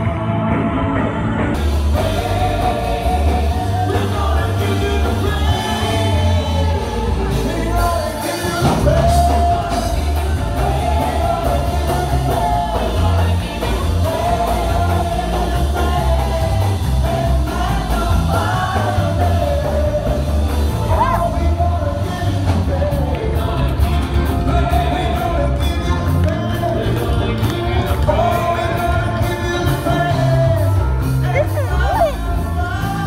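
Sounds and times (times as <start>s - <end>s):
band with heavy bass: 0.0s - 33.0s.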